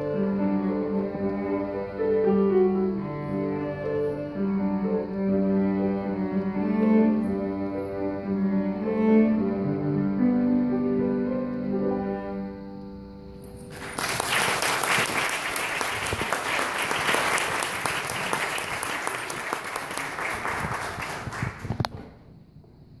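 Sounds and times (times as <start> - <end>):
audience clapping: 13.5 - 22.0.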